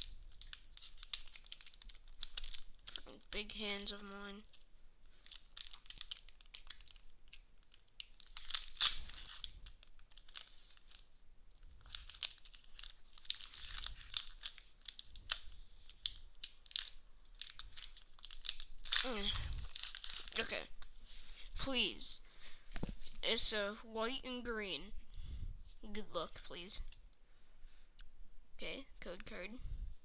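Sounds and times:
foil wrapper tearing and crinkling: 0.0s - 20.5s.

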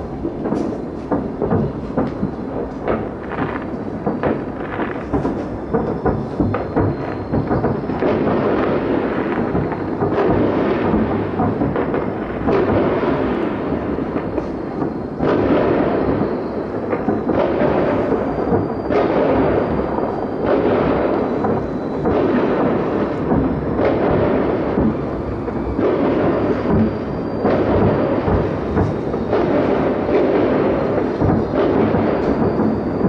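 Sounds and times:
distant fireworks rumble and booms: 0.0s - 33.0s.

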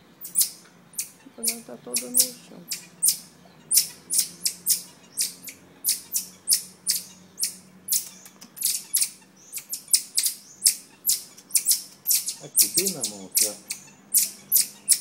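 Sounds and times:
marmosets chirping: 0.2s - 15.0s.

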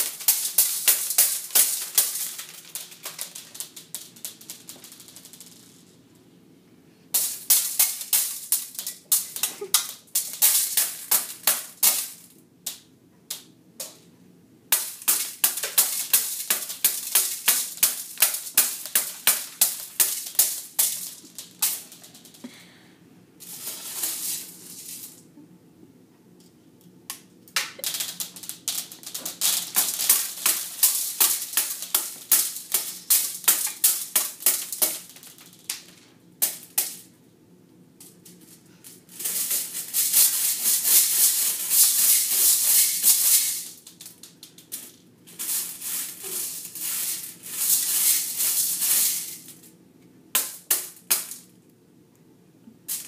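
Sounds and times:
beads rattling in a metal colander: 0.0s - 5.9s, 7.2s - 12.3s, 14.7s - 22.5s, 23.4s - 25.2s, 27.8s - 37.0s, 38.0s - 49.7s.

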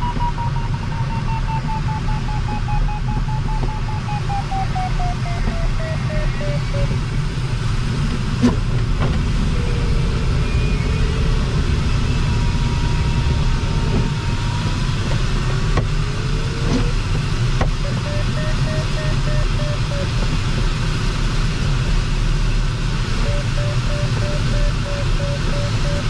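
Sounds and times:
variometer beeping: 0.0s - 8.6s, 17.6s - 20.4s, 23.1s - 26.0s
airflow rushing around cockpit: 0.0s - 26.0s.

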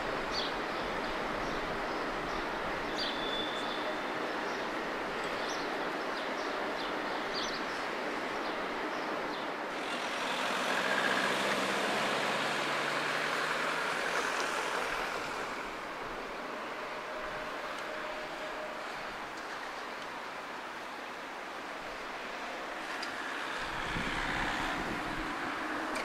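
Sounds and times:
street traffic noise: 0.0s - 26.0s
tram moving off: 0.0s - 26.0s
birds chirping: 0.3s - 15.8s
passing vehicle hum: 6.2s - 26.0s.

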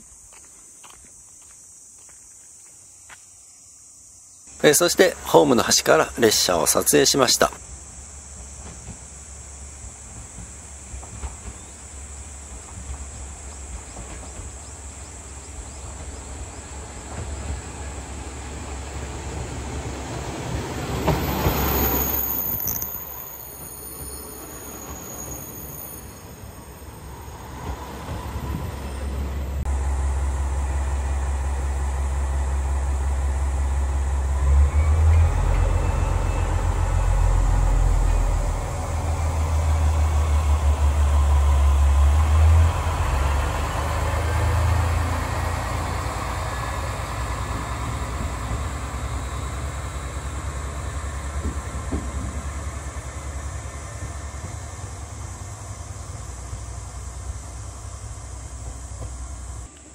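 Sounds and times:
engine whine: 10.4s - 59.9s
diesel engine deep drone: 29.2s - 59.9s.

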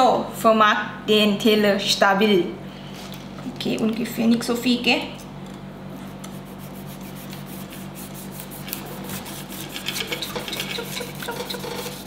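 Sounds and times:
steady low hum: 0.0s - 12.0s
knife sawing pineapple rind: 6.1s - 12.0s.

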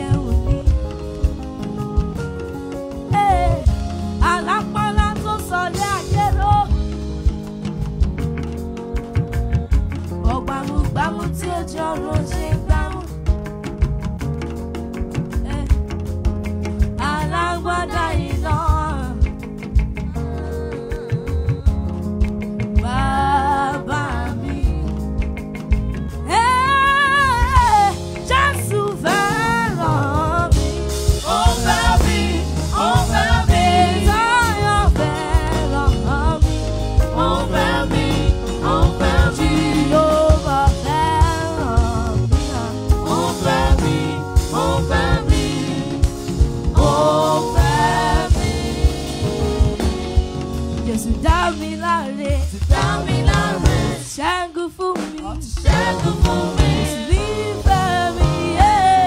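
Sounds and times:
keyboard: 0.0s - 54.2s
drum kit: 0.0s - 59.0s
electric bass guitar: 0.0s - 59.0s
backing singers: 28.5s - 49.9s, 52.4s - 59.0s.

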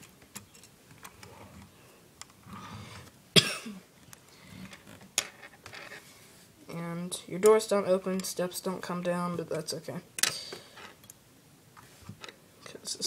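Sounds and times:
person coughing: 3.4s - 3.9s.

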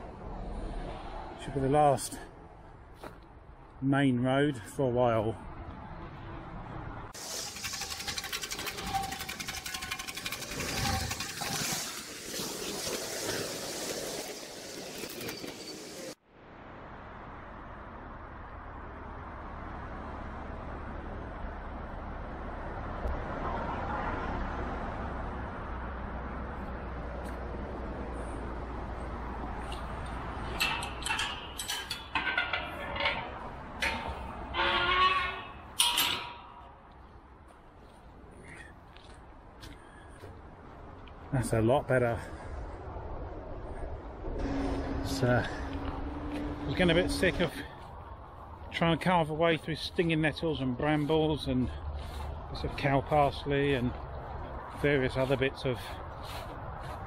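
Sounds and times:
motorway traffic rushing: 0.0s - 57.0s
fast regular rattling: 7.2s - 12.3s
metal gate clanking: 29.7s - 36.8s
footsteps on gravel: 51.9s - 57.0s.

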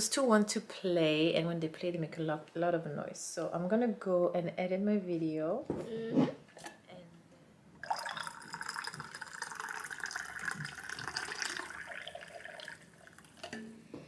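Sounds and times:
liquid pouring into a mug: 7.8s - 13.6s.

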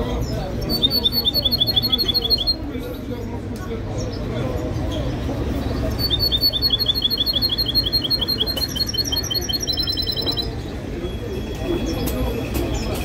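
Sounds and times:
songbird chirping and trilling: 0.0s - 3.1s, 4.0s - 10.8s.

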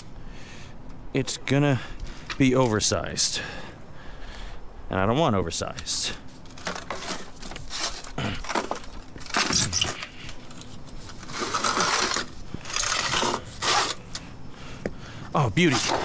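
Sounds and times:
metallic clinks and scrapes: 9.2s - 14.1s.

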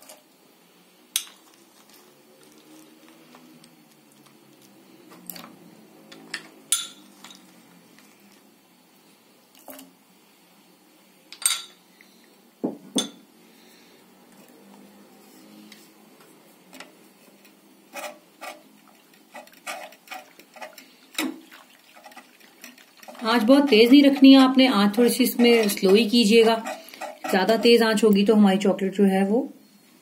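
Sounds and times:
utensils clinking against saucepan: 1.1s - 1.4s, 6.2s - 7.5s, 11.4s - 11.8s, 22.0s - 28.1s
whisk clicking against pan: 18.0s - 28.0s.

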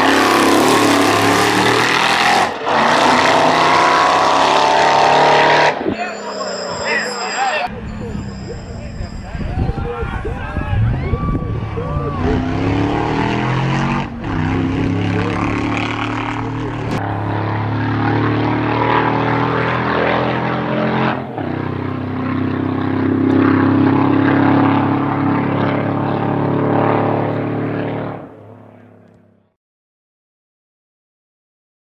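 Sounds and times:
engine droning: 0.0s - 29.5s.

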